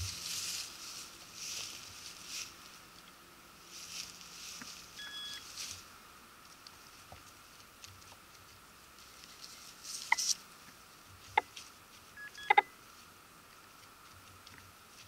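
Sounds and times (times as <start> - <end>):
rustling in dry leaves: 0.0 - 15.0
short electronic beep: 5.0 - 5.4.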